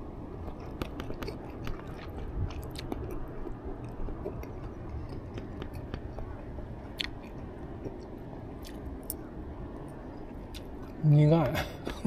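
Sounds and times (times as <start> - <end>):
person chewing crunchy food: 0.3 - 9.3.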